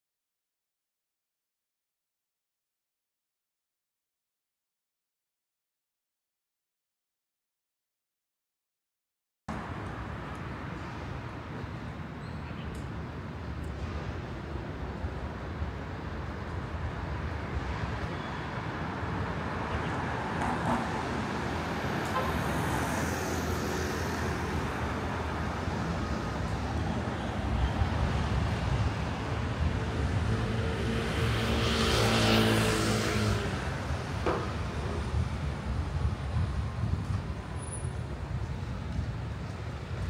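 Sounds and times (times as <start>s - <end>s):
city road traffic: 9.5s - 40.0s
vehicle passing close: 28.0s - 35.4s.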